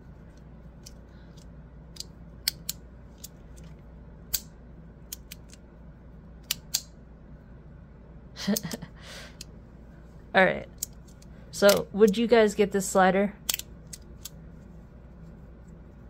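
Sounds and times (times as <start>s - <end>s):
magnetic pieces clicking: 0.8s - 3.7s, 5.1s - 5.6s, 10.8s - 12.2s, 13.4s - 14.4s.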